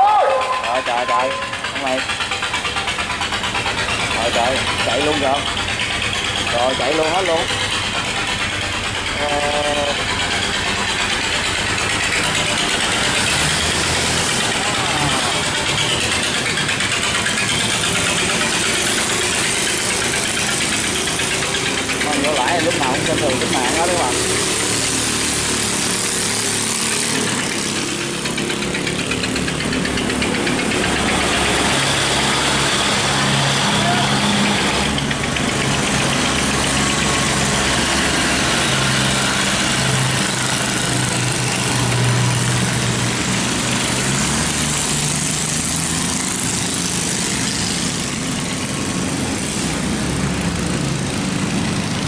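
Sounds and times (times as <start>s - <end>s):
boat engines droning: 0.0s - 52.0s
fast mechanical rattle: 0.3s - 33.6s, 34.2s - 52.0s.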